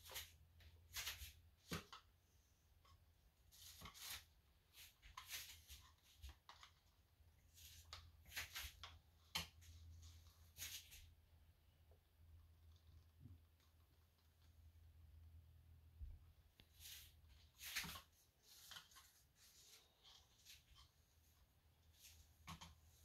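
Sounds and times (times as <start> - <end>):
sticks stirring paint: 0.0 - 15.2, 16.5 - 23.0
plastic cups scraping and rustling: 16.6 - 23.0.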